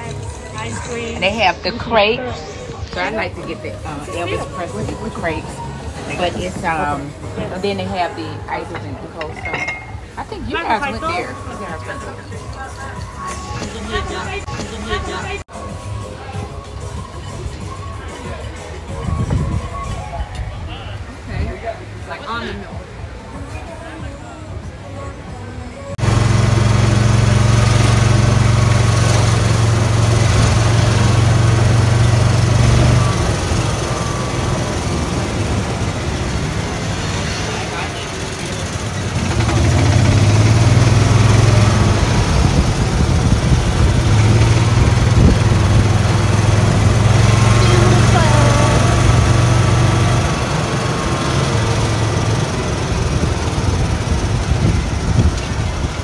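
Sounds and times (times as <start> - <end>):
golf cart engine humming: 0.0 - 18.0, 25.9 - 56.0
wind and road noise: 18.8 - 56.0.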